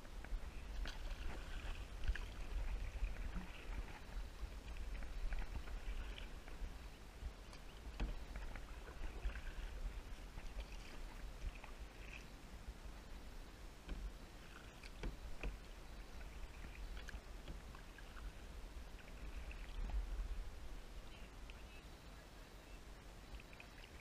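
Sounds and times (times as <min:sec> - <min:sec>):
paddle splashing in water: 0:00.2 - 0:12.4, 0:13.0 - 0:20.4, 0:23.3 - 0:24.0
steady low rumble: 0:15.2 - 0:23.1.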